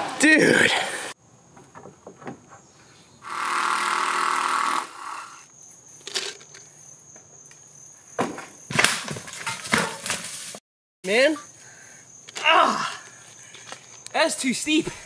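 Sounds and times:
faint high insect buzz: 3.0s - 8.2s
loud buzz: 3.2s - 5.5s
mountain bike crashing: 8.2s - 10.6s.

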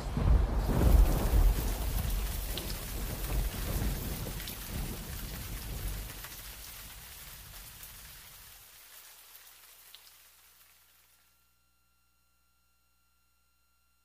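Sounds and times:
low thunder rumble: 0.0s - 8.5s
rain: 0.0s - 11.4s.

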